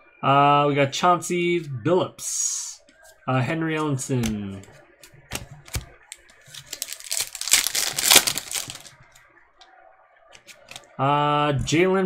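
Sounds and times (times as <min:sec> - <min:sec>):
cards clicking: 0:05.0 - 0:08.9, 0:10.4 - 0:10.9
wrapper crinkling and tearing: 0:06.1 - 0:09.0.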